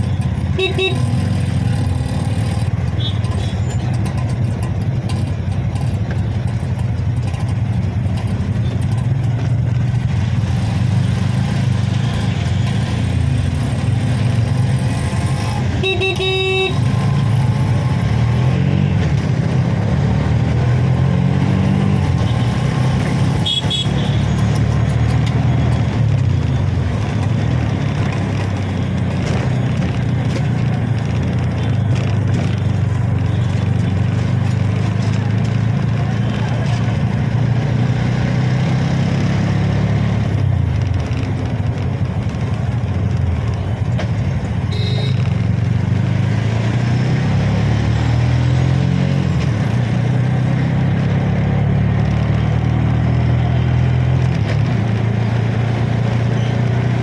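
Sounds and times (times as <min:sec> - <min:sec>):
vehicle horn honking: 0:00.6 - 0:01.0, 0:15.8 - 0:16.8, 0:23.4 - 0:24.3, 0:44.7 - 0:45.2
short high horn toot: 0:44.7 - 0:45.2.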